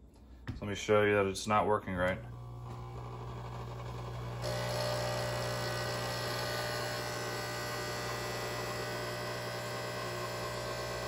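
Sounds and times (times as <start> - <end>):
coffee machine pump buzzing: 2.0 - 11.0.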